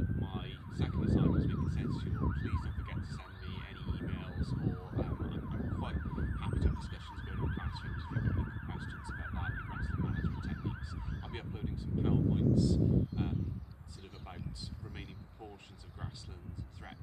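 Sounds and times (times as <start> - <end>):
siren yelping: 0.0 - 11.6.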